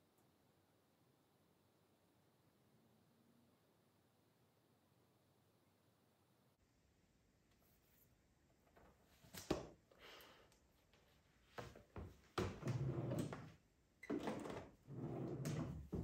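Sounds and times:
wooden drawer sliding: 14.1s - 16.0s.

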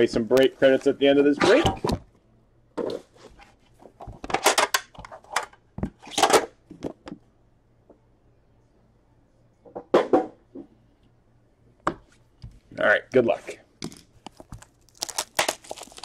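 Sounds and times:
packaging crinkling and tearing: 14.3s - 16.0s.

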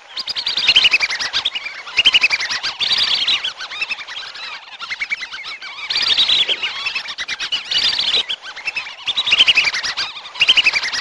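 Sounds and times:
whistling ducks calling: 0.0s - 11.0s.

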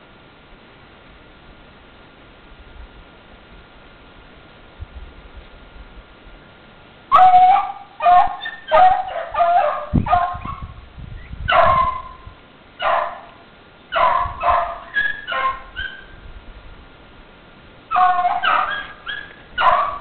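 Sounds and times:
dogs baying: 7.1s - 10.7s, 14.0s - 16.1s, 17.9s - 20.0s.

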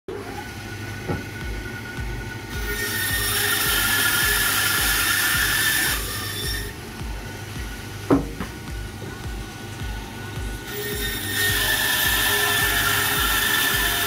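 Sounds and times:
band saw cutting bone: 2.5s - 6.8s, 10.6s - 14.0s.

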